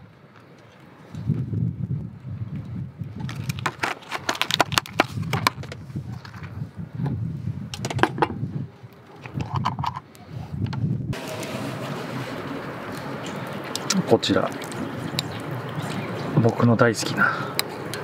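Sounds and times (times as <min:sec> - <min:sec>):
plastic tray crinkling and clicking: 0:03.2 - 0:06.4.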